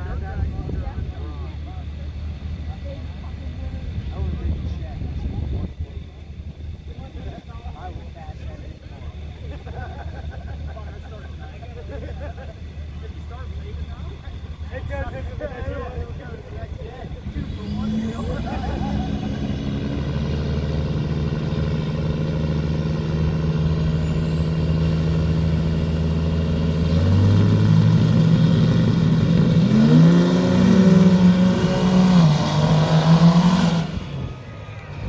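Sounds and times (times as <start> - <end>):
pickup truck engines revving: 8.4 - 35.0.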